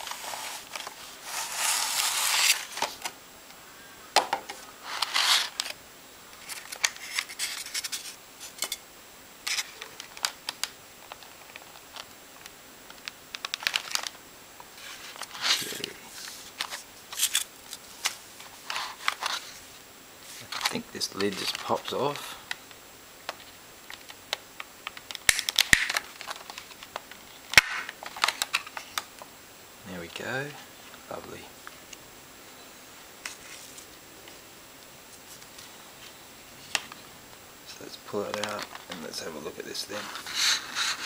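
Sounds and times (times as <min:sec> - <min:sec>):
plastic packaging crinkling: 0:06.4 - 0:08.6, 0:09.5 - 0:19.6, 0:20.3 - 0:22.6, 0:24.8 - 0:29.1, 0:38.1 - 0:41.0.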